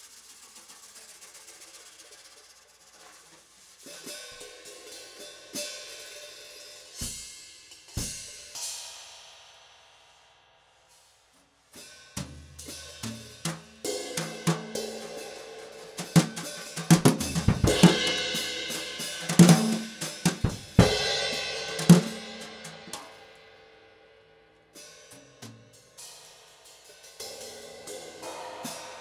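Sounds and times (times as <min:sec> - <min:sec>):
cymbals and hi-hat: 0:00.0 - 0:29.0.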